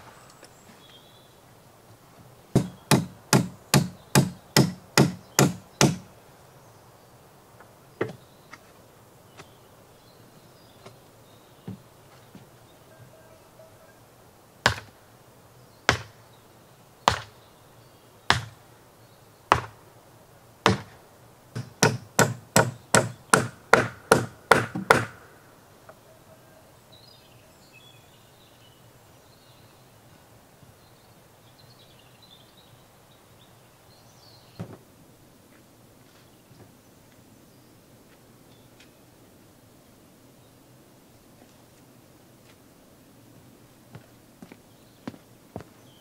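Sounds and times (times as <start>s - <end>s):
faint insect or bird chirping: 0.0s - 21.5s, 25.3s - 46.0s
claw hammer striking wood: 2.6s - 6.1s, 14.7s - 14.9s, 15.9s - 16.2s, 17.1s - 17.4s, 18.3s - 18.6s, 19.5s - 19.8s, 20.7s - 25.3s.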